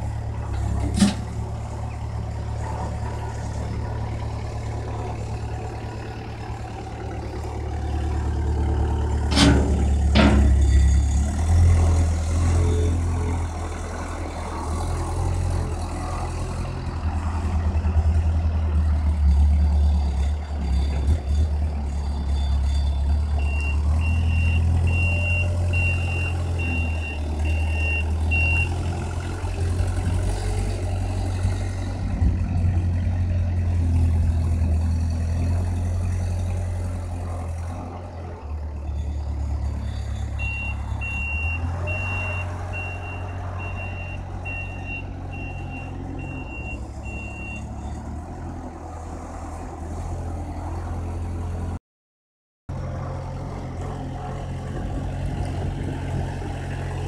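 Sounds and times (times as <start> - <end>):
diesel engine running: 0.0 - 51.7
reversing alarm beeping: 22.0 - 28.8, 39.9 - 47.9.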